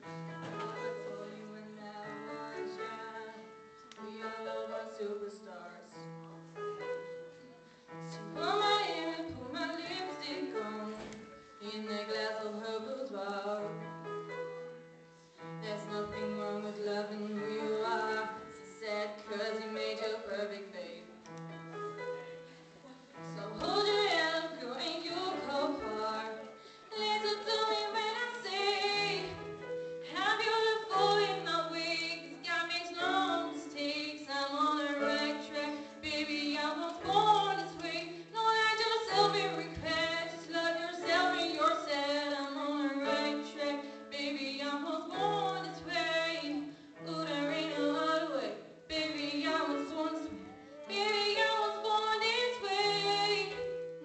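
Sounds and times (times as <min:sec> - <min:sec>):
grand piano: 0:00.0 - 0:54.0
woman singing pop ballad: 0:08.2 - 0:13.6, 0:23.4 - 0:29.4, 0:30.1 - 0:50.3.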